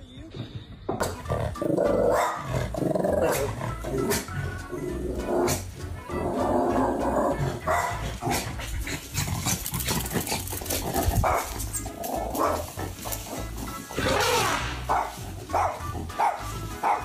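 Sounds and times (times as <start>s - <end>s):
small dog barking: 2.0s - 2.5s, 7.6s - 8.6s, 11.1s - 11.6s, 12.2s - 12.7s, 14.0s - 17.0s.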